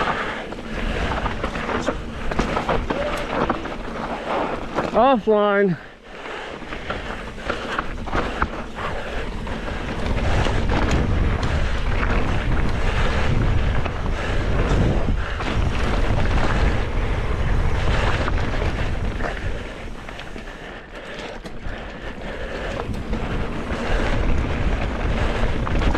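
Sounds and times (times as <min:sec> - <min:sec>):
bike rattling: 0:00.0 - 0:25.9
tyres rumbling on dirt: 0:00.0 - 0:25.9
wind buffeting microphone: 0:06.7 - 0:20.5, 0:21.6 - 0:25.9.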